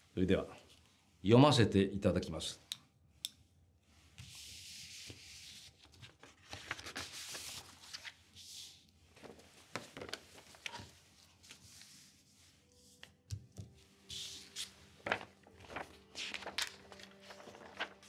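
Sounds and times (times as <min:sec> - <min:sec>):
paper rustling and sliding: 0:04.2 - 0:13.0, 0:14.0 - 0:18.0.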